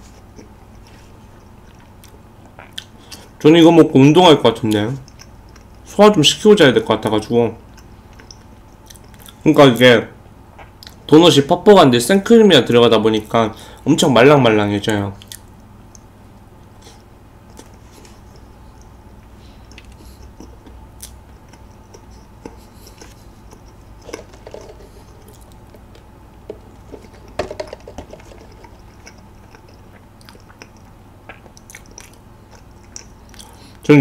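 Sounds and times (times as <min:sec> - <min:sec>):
soft moist chewing: 0:00.0 - 0:03.4, 0:04.6 - 0:05.9, 0:07.6 - 0:09.4, 0:10.6 - 0:11.0, 0:15.2 - 0:33.9
low steady hum: 0:00.0 - 0:34.0
mouth clicks and smacks: 0:00.2 - 0:03.4, 0:04.7 - 0:05.9, 0:07.7 - 0:09.4, 0:10.6 - 0:11.1, 0:15.2 - 0:16.1, 0:16.9 - 0:33.9.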